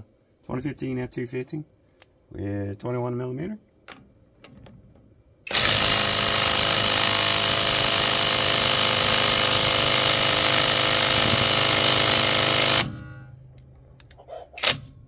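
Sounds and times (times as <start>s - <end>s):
impact wrench hammering: 5.5s - 13.3s.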